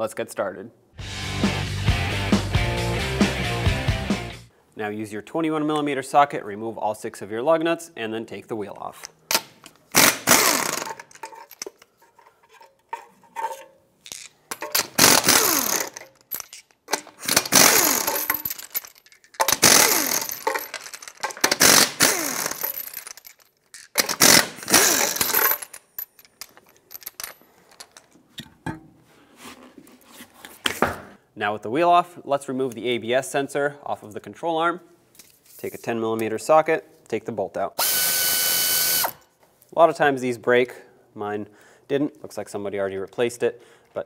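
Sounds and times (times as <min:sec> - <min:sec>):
impact wrench bursts: 0:09.3 - 0:11.3, 0:14.5 - 0:18.8, 0:19.4 - 0:23.0, 0:24.0 - 0:25.6, 0:37.8 - 0:39.2.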